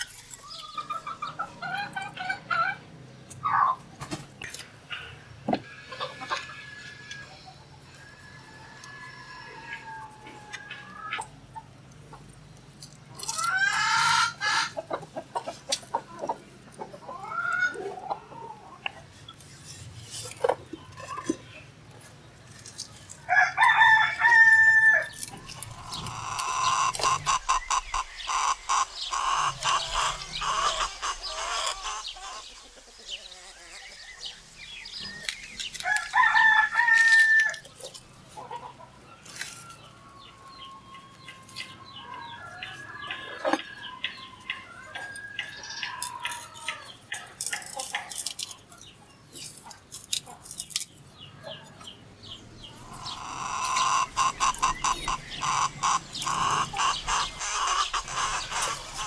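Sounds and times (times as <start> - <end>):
chickens clucking: 0.0 - 59.0
roosters crowing: 5.0 - 11.5, 13.2 - 15.6, 22.7 - 34.3, 34.9 - 47.8, 51.5 - 59.0.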